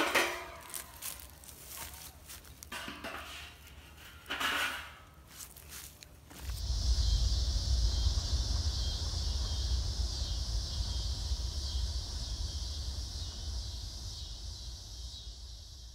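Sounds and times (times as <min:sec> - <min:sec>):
steady high hiss: 0:00.0 - 0:15.9
wind rumbling on microphone: 0:06.2 - 0:15.9.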